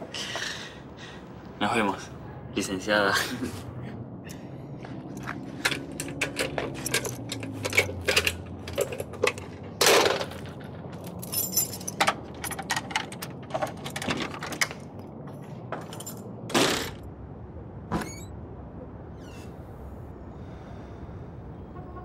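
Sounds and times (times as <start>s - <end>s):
metallic clicks of locks: 5.6s - 10.4s
keys jangling: 11.0s - 14.1s, 15.9s - 16.2s.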